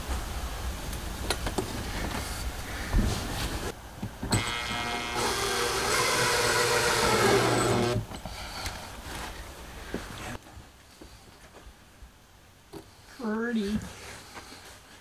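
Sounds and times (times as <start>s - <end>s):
cordless drill driving screw: 4.3s - 8.0s.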